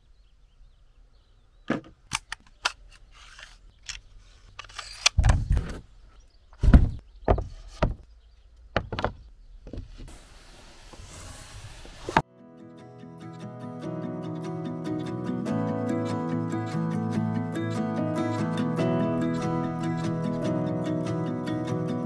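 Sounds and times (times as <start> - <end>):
heavy thuds: 6.6 - 8.1
knocks and clatter on wooden table: 8.8 - 9.8.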